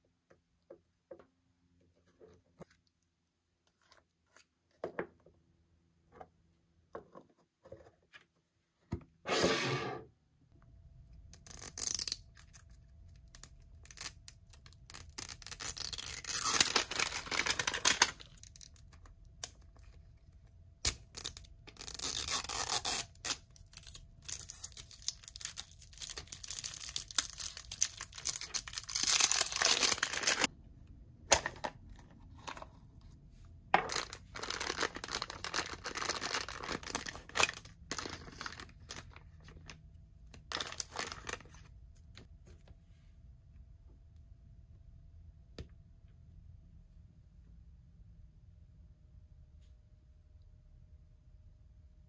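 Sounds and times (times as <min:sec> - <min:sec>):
packaging tearing and rustling: 0:14.9 - 0:18.7, 0:21.2 - 0:30.5, 0:33.9 - 0:39.1, 0:40.5 - 0:41.5.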